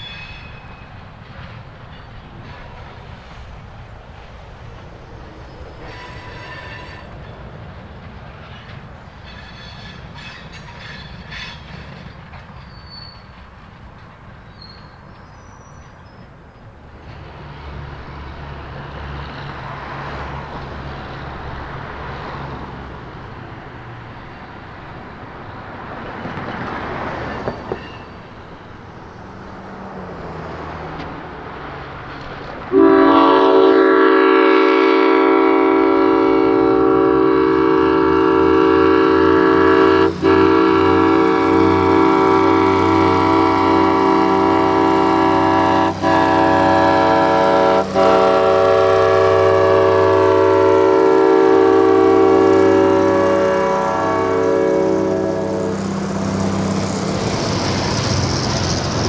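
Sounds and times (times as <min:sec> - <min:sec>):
locomotive engine rumbling: 0:00.0 - 0:59.0
locomotive air horn: 0:05.8 - 0:07.1, 0:32.7 - 0:55.9.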